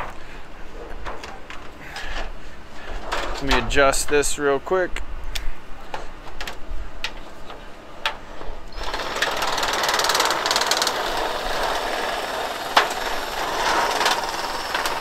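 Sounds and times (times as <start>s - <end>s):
reciprocating saw cutting sheet metal: 8.8s - 15.0s.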